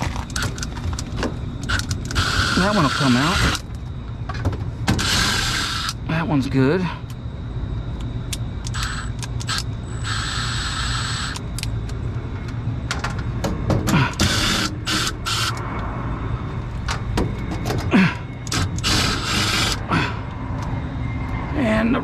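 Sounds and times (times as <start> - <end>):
steady low hum: 0.0 - 22.0
impact driver bursts: 1.7 - 3.6, 5.0 - 6.0, 14.2 - 15.5, 18.5 - 19.8.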